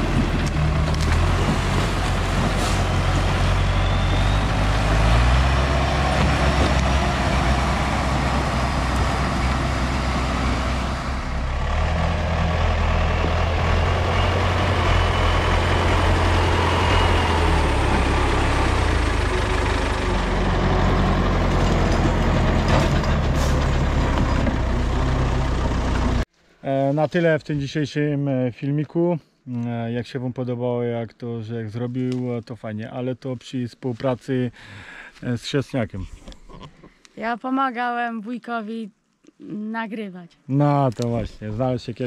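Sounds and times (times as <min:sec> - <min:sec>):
diesel engine running: 0:00.0 - 0:26.3.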